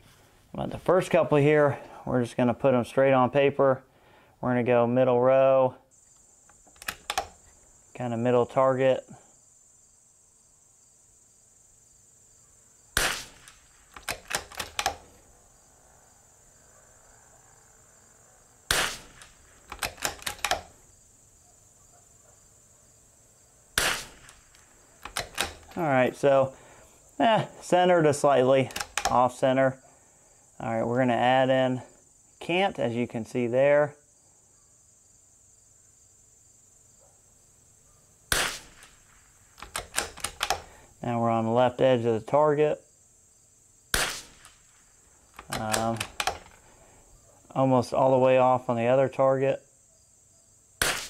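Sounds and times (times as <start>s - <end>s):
crickets chirring: 5.8s - 51.0s
rifle bolt clicking: 6.5s - 7.5s, 13.0s - 15.2s, 18.7s - 20.8s, 23.8s - 25.8s, 28.6s - 29.2s, 39.6s - 40.7s, 45.4s - 46.6s
rifle shot crack: 13.0s - 15.2s, 18.7s - 20.8s, 23.8s - 26.4s, 38.3s - 40.7s, 43.9s - 46.8s, 50.8s - 51.0s.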